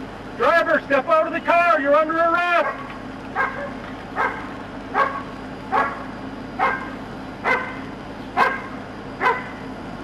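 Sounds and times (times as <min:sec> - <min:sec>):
dog barking: 0:03.4 - 0:07.8, 0:08.4 - 0:09.6.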